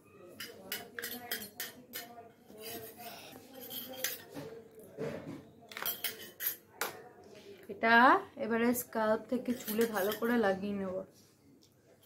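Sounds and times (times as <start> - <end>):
spoon scraping metal bowl: 0.4 - 4.4, 9.4 - 10.4.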